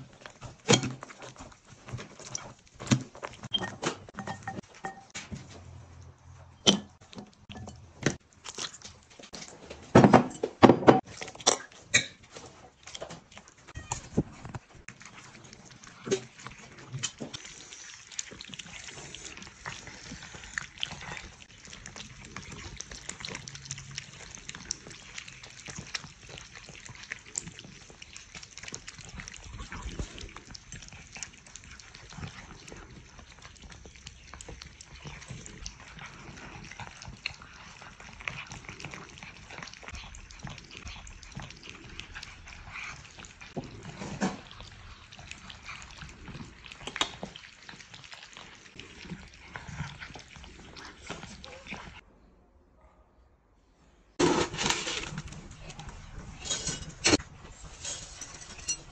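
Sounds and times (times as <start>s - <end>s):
cats chewing and lapping: 0.0s - 52.1s, 54.2s - 58.9s.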